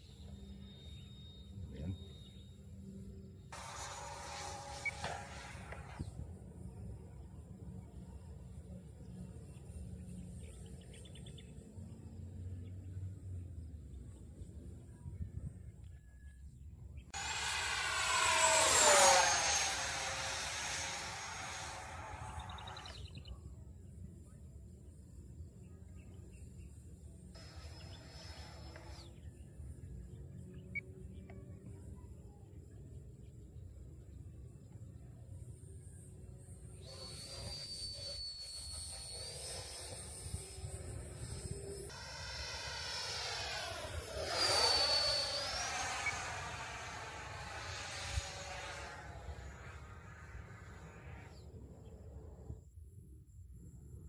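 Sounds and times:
rc jet fan whooshing overhead: 3.0 - 13.1, 17.1 - 23.3, 27.3 - 30.9, 35.9 - 52.7.

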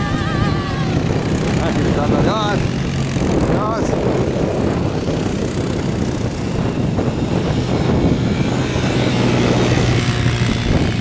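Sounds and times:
off-road vehicle engines droning: 0.0 - 11.0.

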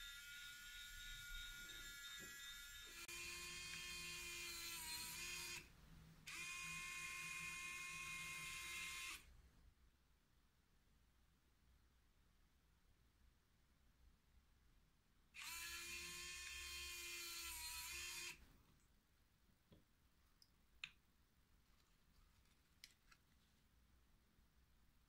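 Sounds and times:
small electric motor whining: 0.0 - 5.7, 6.3 - 9.2, 15.4 - 18.4.

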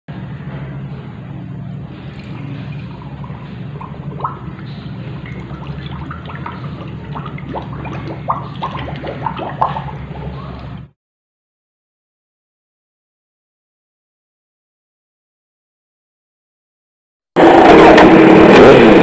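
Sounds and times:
low hum: 0.1 - 10.9
liquid pouring into glass jar: 2.0 - 10.9.

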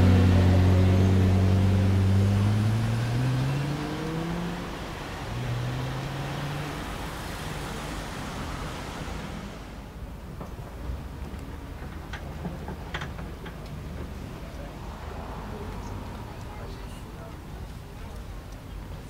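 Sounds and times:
sports car engine pulling away: 0.0 - 9.8.

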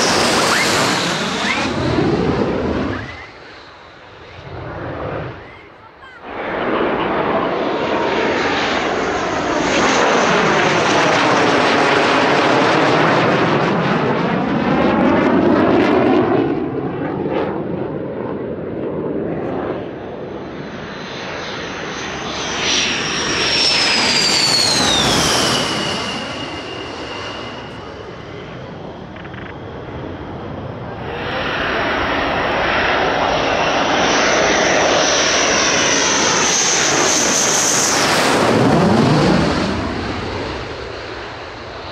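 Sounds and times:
high turbine whine falling in pitch: 0.0 - 5.6, 22.6 - 40.1
jet roar with phasing tones: 0.0 - 41.9.

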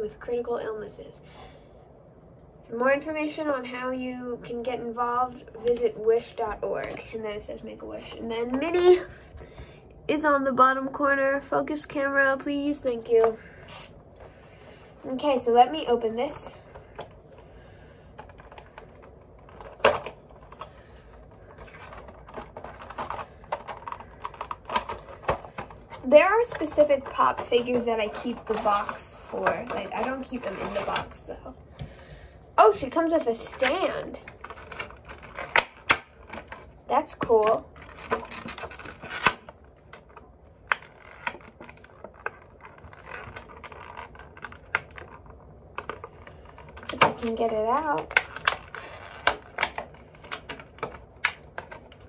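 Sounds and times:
plastic packaging crinkling: 15.1 - 31.4, 32.7 - 52.0.

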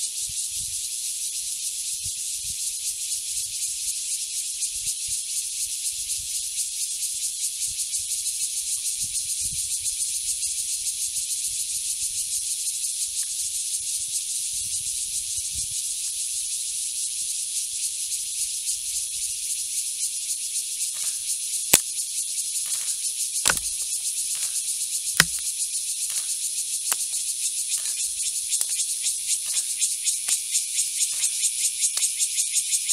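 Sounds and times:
high-pitched insect chorus: 0.0 - 32.9
sharp clicks: 23.5 - 23.8, 25.2 - 25.4.

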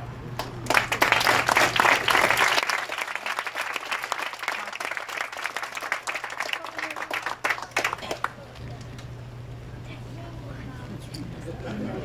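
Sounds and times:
audience applauding: 0.4 - 9.1.

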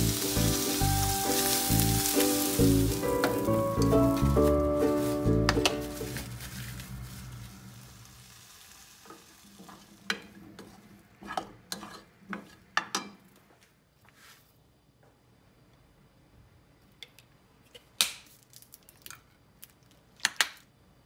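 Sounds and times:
food sizzling in a pan: 0.0 - 12.0
utensil scraping a pan: 9.1 - 12.7.

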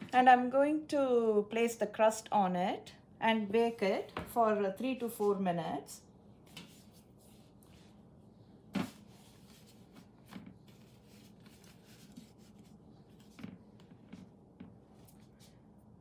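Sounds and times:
soft rubbing of dough: 6.4 - 15.8.

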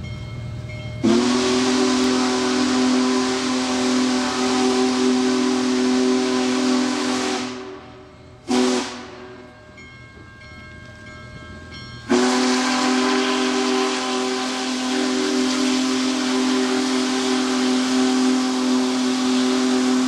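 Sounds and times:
steam whistle blowing: 1.0 - 9.5, 12.0 - 20.0.

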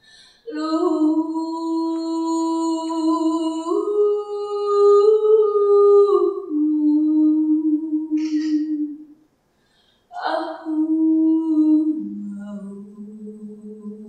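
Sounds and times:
woman singing wordless notes: 0.0 - 9.2, 10.1 - 14.0
breathy hiss: 9.5 - 10.1.

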